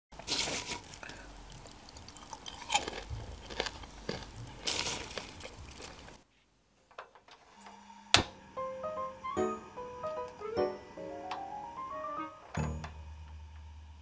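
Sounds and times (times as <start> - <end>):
popcorn rustling and crackling: 0.1 - 6.4.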